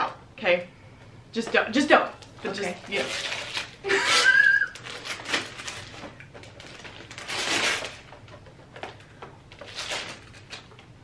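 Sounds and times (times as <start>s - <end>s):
tissue paper rustling: 2.5s - 8.1s.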